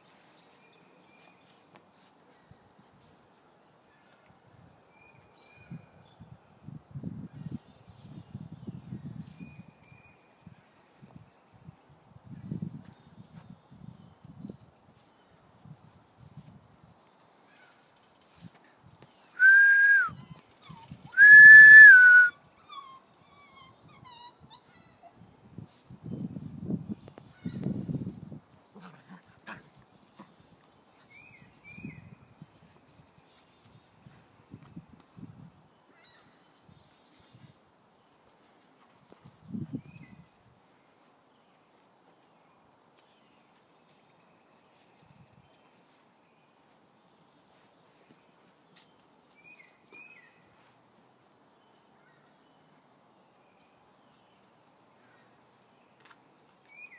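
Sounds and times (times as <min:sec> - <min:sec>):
faint outdoor ambience: 0:00.0 - 0:56.9
puppy whining: 0:19.4 - 0:25.2
puppy whimpering: 0:22.1 - 0:25.0.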